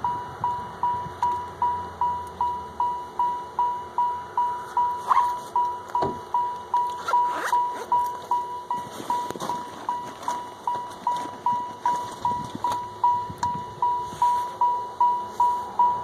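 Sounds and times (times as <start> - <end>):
car warning chime dinging: 0.0 - 16.0
faint rustles and clicks: 6.8 - 12.9.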